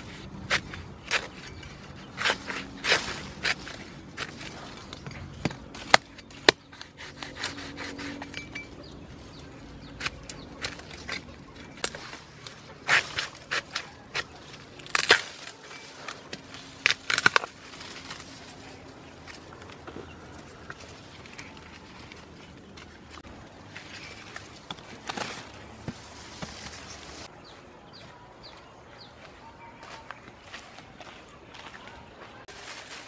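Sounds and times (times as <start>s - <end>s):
cleaver chopping bamboo shoot: 0.0s - 8.8s, 9.8s - 18.2s.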